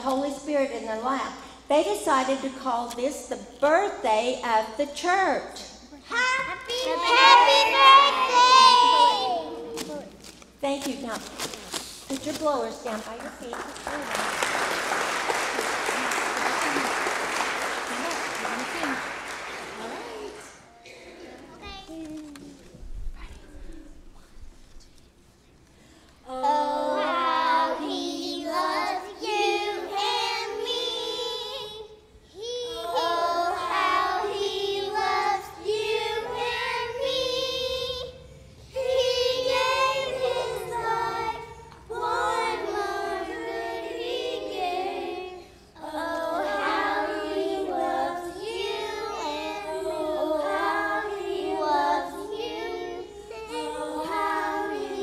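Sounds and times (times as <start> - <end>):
young children singing: 5.6 - 9.9, 26.2 - 55.0.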